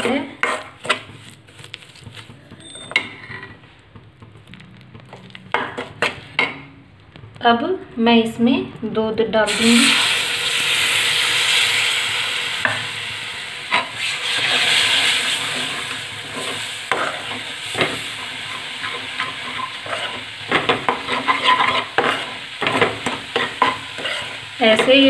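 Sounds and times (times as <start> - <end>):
metal spoon scraping a pan: 0.0 - 3.8, 13.7 - 25.0
milk sizzling in hot pan: 9.4 - 25.0.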